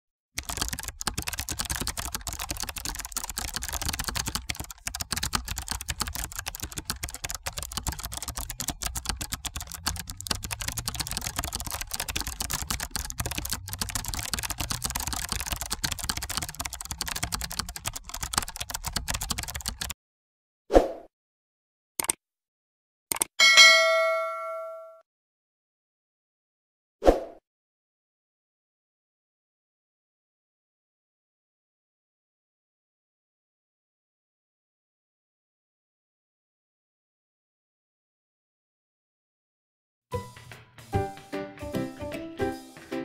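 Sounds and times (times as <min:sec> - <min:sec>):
computer keyboard typing: 0:00.4 - 0:20.0, 0:22.0 - 0:22.2, 0:23.1 - 0:23.3.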